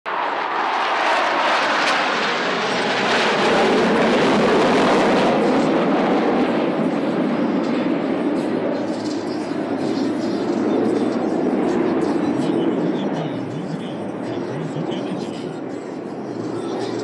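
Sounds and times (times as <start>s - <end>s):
jet formation roar: 0.1s - 17.0s.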